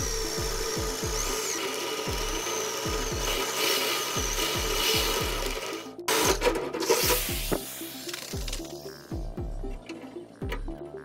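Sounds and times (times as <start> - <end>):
power drill boring through metal: 0.0 - 7.6
background music with steady beat: 0.0 - 11.0.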